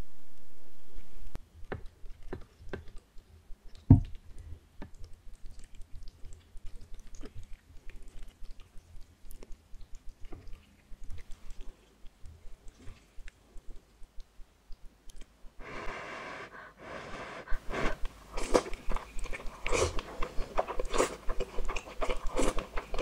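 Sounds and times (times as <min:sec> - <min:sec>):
chewing with wet mouth clicks: 0:01.6 - 0:15.6, 0:18.0 - 0:23.0
steady hiss: 0:15.6 - 0:18.7.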